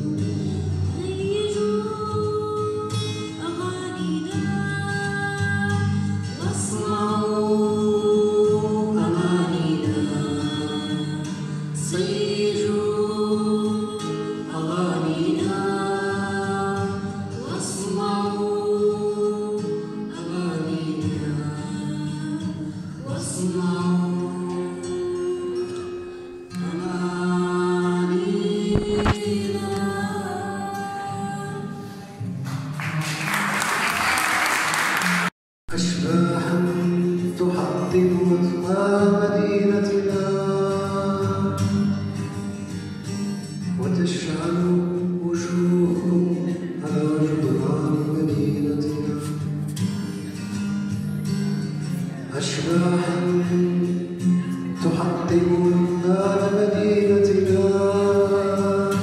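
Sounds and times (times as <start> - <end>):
strummed acoustic guitar: 0.0 - 33.6, 34.7 - 59.0
girl singing: 0.9 - 11.3, 27.8 - 31.8
thump: 28.8 - 29.2.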